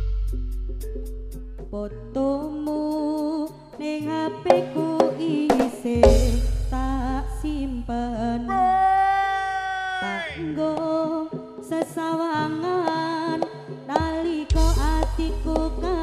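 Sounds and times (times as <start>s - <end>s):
ensemble drums: 4.5s - 8.9s, 12.8s - 16.0s
heavy low drum boom: 6.0s - 8.2s.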